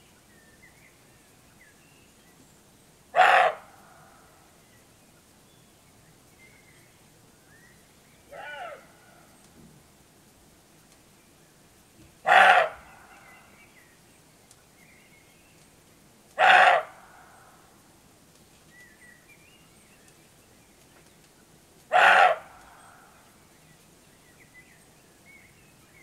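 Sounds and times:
deer barking: 3.2 - 3.7, 8.3 - 8.9, 12.2 - 12.9, 16.4 - 17.0, 21.9 - 22.6.

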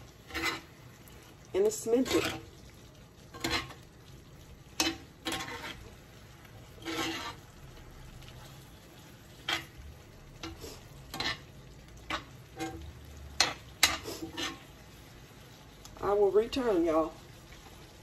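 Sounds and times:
metal spoon scraping a skillet: 0.0 - 2.6, 3.2 - 3.8, 4.6 - 9.8, 10.4 - 14.8
sauce simmering with faint sizzle: 0.0 - 18.0.

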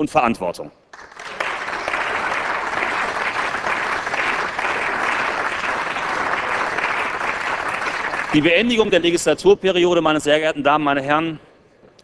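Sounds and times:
crowd applauding: 0.9 - 9.2.

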